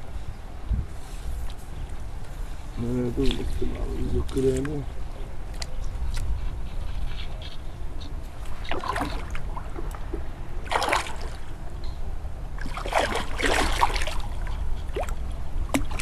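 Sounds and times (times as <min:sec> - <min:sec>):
steady low rumble: 0:00.0 - 0:16.0
fish splashing in water: 0:08.4 - 0:11.5, 0:12.6 - 0:16.0.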